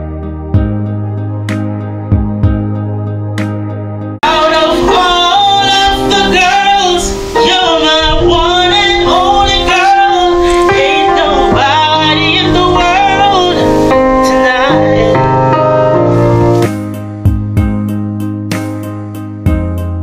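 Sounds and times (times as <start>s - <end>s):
song with singing voice: 3.4s - 17.7s.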